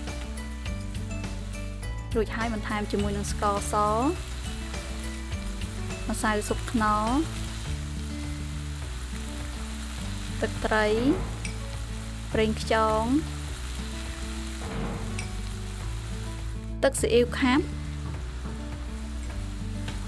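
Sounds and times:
background music low notes: 0.0 - 20.0
squid sizzling in hot oil: 0.0 - 20.0.

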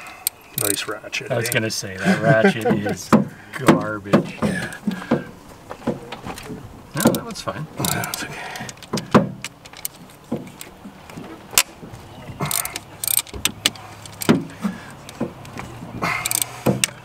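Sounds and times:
metallic clicks of hand tools: 7.0 - 7.2, 12.5 - 17.0.

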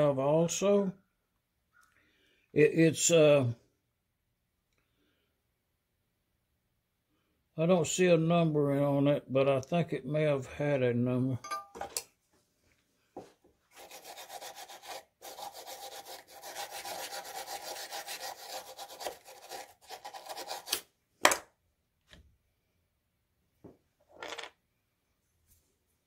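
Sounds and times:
hand scrubbing metal: 13.7 - 20.8.

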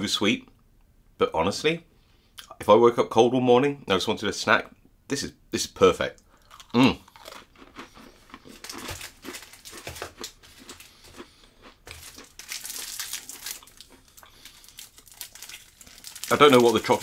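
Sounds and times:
plastic wrappers crinkling: 7.3 - 17.0.

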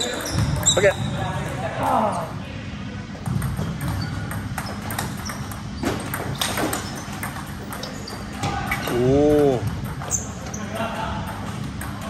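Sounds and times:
ball bouncing on table: 3.2 - 10.2, 11.2 - 12.0
ball hitting paddles: 3.2 - 10.2.

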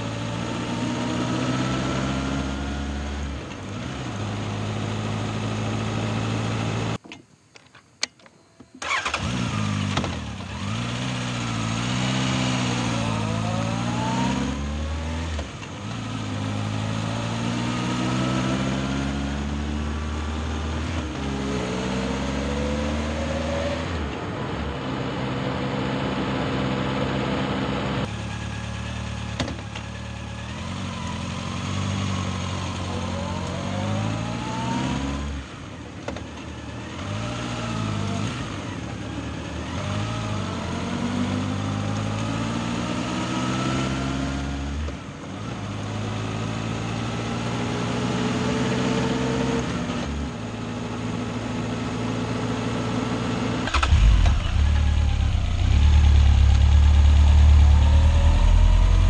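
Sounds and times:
motorcycle engine accelerating: 0.0 - 7.0, 8.8 - 59.0
low engine rumble: 53.6 - 59.0.

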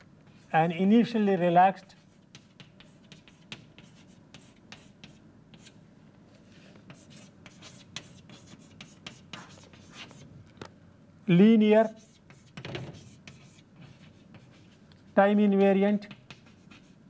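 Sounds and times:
chalk tapping and scratching: 1.4 - 5.8, 6.8 - 10.3, 11.8 - 17.0.

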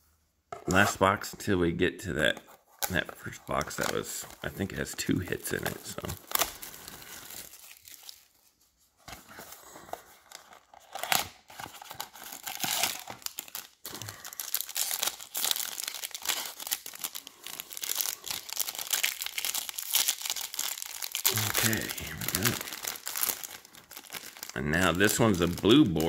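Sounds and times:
foil wrapper crinkling and tearing: 5.5 - 8.5, 10.1 - 26.0.

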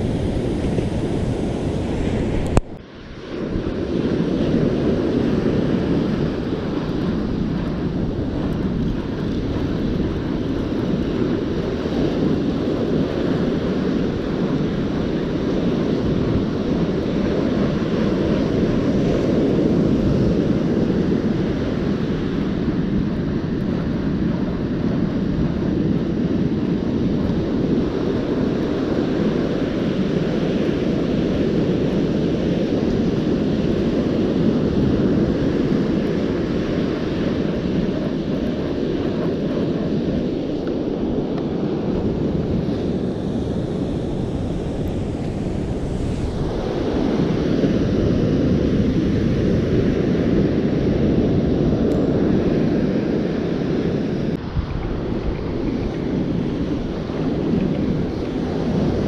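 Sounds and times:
ocean surf breaking: 0.0 - 59.0
wind rumble on microphone: 0.0 - 59.0.

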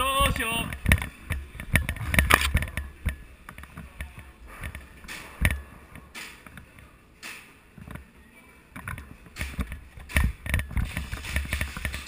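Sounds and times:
camera handling thumps and rustling: 0.7 - 2.8
sharp clicks: 1.7 - 2.8.

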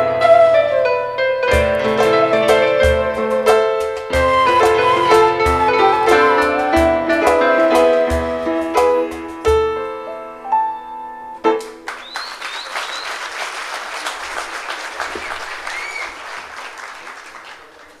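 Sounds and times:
piano flute and percussion ensemble: 0.0 - 10.0, 11.4 - 17.6
whistles from audience: 4.2 - 6.9, 11.9 - 18.0
audience applause: 11.7 - 18.0.

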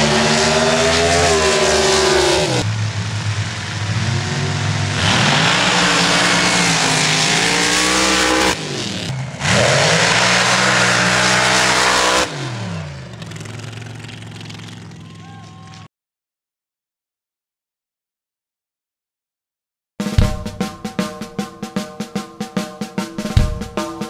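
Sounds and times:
loud rushing noise: 0.0 - 12.9
engine winding down: 0.0 - 15.9
off-road vehicle engine revving: 0.0 - 15.9.

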